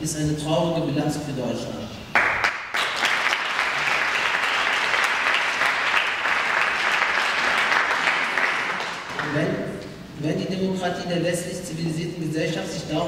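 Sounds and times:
audience applauding: 0:02.2 - 0:09.4.

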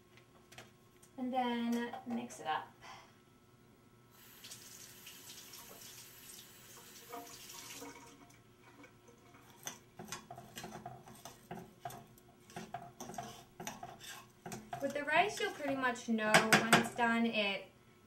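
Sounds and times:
faucet running water into sink: 0:04.2 - 0:08.4
fork scraping metal saucepan: 0:09.2 - 0:16.0.

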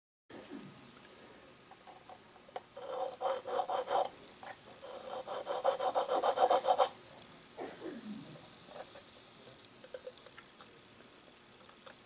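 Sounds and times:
needle file scraping steel screw: 0:02.8 - 0:06.9.

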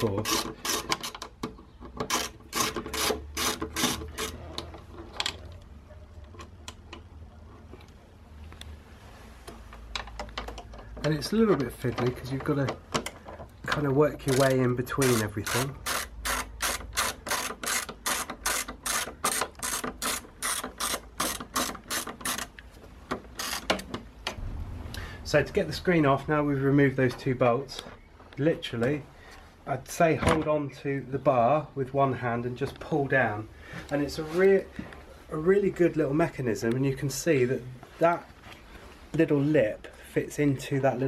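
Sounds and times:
ratchet clicks: 0:00.2 - 0:04.4, 0:14.2 - 0:23.9.

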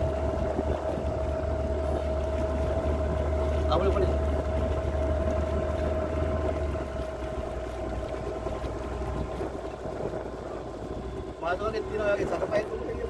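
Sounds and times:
motorboat engine humming: 0:00.0 - 0:13.0.

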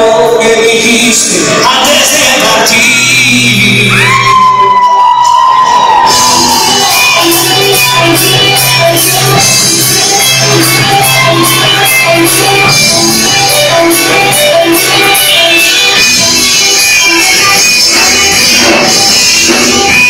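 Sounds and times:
bass line: 0:00.0 - 0:20.0
drums beating on cymbals: 0:05.9 - 0:20.0
electric guitars picking: 0:05.9 - 0:20.0.

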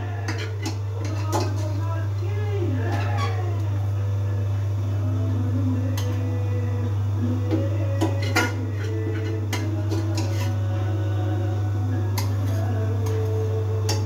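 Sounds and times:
metal utensils clinking: 0:00.0 - 0:01.9, 0:07.5 - 0:10.6, 0:12.2 - 0:14.0
steady low hum: 0:00.0 - 0:14.0.

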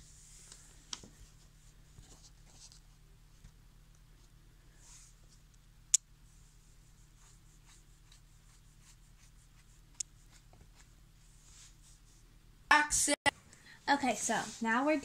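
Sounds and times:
paintbrush strokes on foam: 0:00.0 - 0:00.5, 0:04.7 - 0:05.4, 0:06.2 - 0:12.2, 0:14.0 - 0:14.9.

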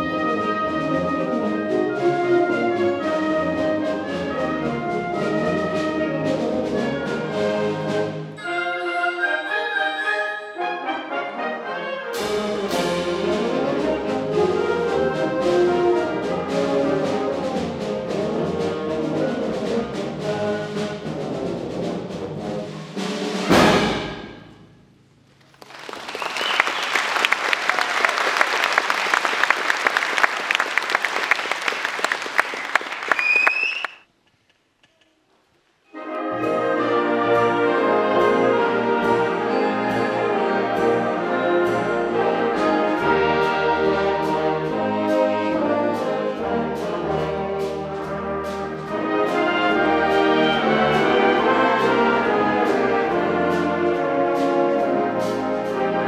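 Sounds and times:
concert band playing: 0:00.0 - 0:24.5, 0:36.0 - 0:56.0
audience applause: 0:25.5 - 0:34.0
whistle from audience: 0:26.0 - 0:27.2, 0:32.4 - 0:34.1.

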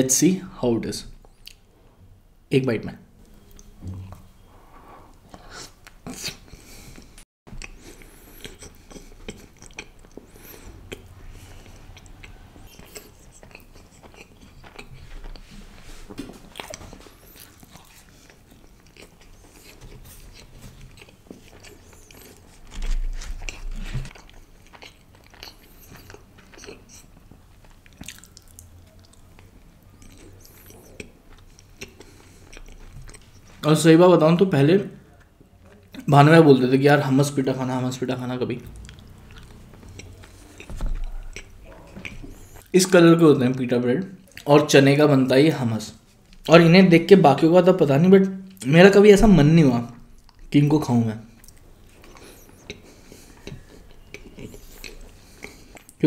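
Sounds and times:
chewing with wet mouth smacks: 0:07.0 - 0:33.6, 0:38.6 - 0:42.8, 0:50.1 - 0:50.6, 0:51.3 - 0:56.0.

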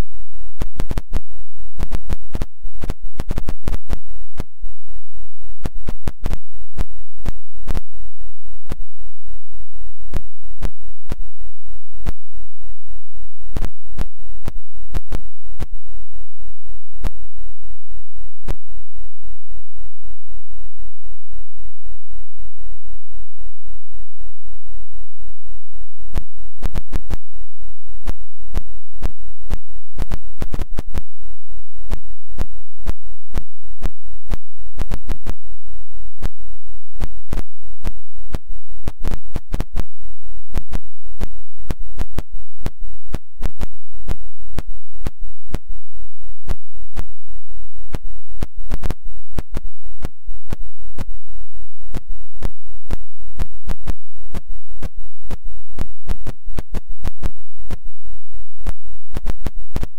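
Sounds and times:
rapid irregular crackling clicks: 0:00.6 - 0:04.5, 0:05.6 - 0:07.9, 0:13.6 - 0:15.7, 0:26.1 - 0:27.2, 0:28.1 - 0:31.1, 0:31.9 - 0:35.4, 0:37.0 - 0:39.9, 0:40.5 - 0:45.7, 0:47.9 - 0:51.1, 0:53.7 - 0:57.8, 0:58.6 - 0:59.9.

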